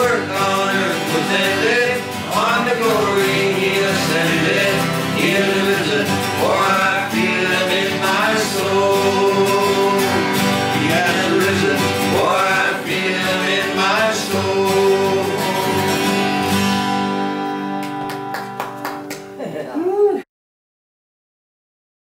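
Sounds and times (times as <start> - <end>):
men singing in harmony: 0.0 - 16.4
acoustic guitars strummed: 0.0 - 19.4.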